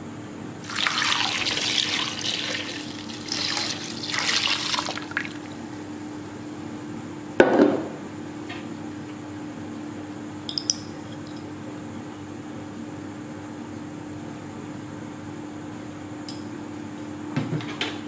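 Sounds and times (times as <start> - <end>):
liquid splashing into a clay pot: 0.6 - 5.6.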